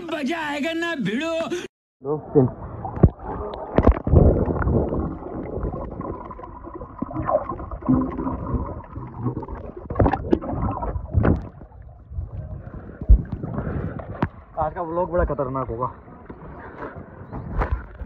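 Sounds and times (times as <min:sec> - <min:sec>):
underwater bubbling and gurgling: 0:02.2 - 0:14.6.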